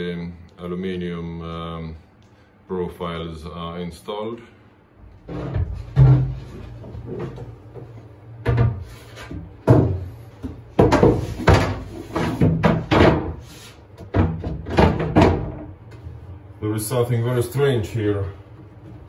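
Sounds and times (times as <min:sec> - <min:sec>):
wooden panel knocks and bumps: 0:05.3 - 0:13.4, 0:14.0 - 0:15.8.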